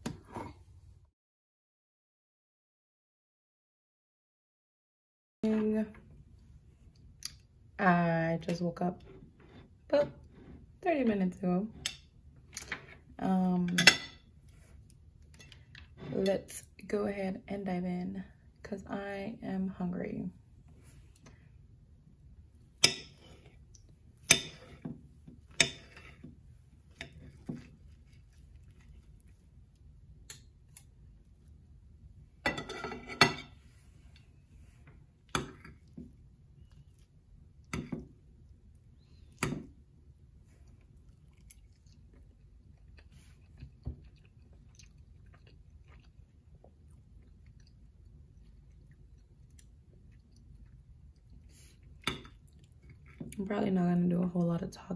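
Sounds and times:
close chewing: 0:27.1 - 0:31.0, 0:40.5 - 0:53.4
knife and fork scraping on plate: 0:32.5 - 0:34.2.

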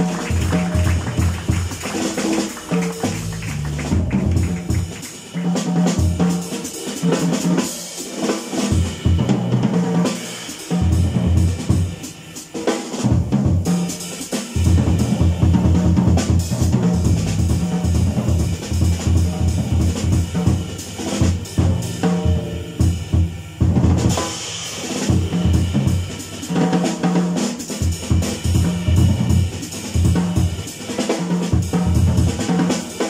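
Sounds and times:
drum kit: 0:00.0 - 0:33.0
jazz quartet playing live: 0:00.0 - 0:33.0
walking bass line: 0:03.1 - 0:05.0.

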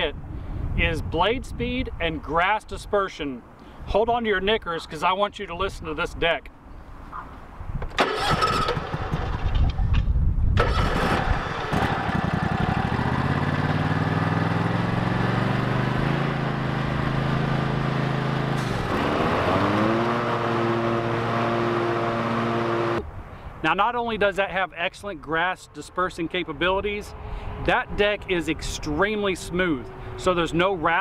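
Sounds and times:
mower engine cranking and starting: 0:07.9 - 0:10.0, 0:10.6 - 0:13.6, 0:18.4 - 0:23.0
mower blades running: 0:08.0 - 0:09.8, 0:10.6 - 0:23.0.

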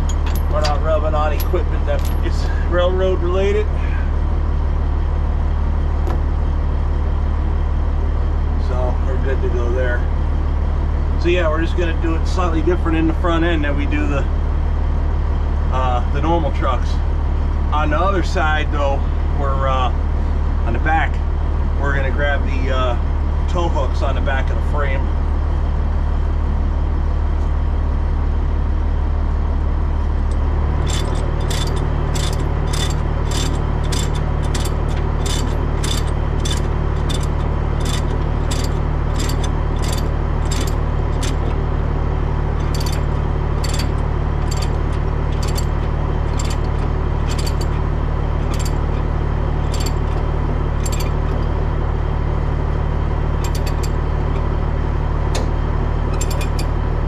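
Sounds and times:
diesel truck engine idling: 0:00.0 - 0:57.0
sharp metallic clicks: 0:30.8 - 0:41.6, 0:42.6 - 0:47.8, 0:48.4 - 0:49.0, 0:49.6 - 0:50.2, 0:50.8 - 0:51.5, 0:53.4 - 0:54.0, 0:56.2 - 0:56.7.

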